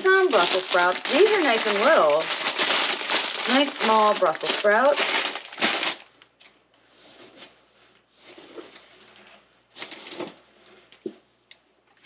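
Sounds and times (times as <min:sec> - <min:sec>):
paper packaging rustling: 0:00.0 - 0:06.2.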